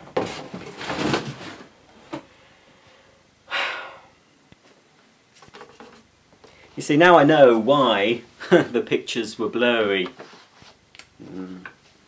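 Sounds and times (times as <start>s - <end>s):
person exhaling: 2.4s - 4.2s.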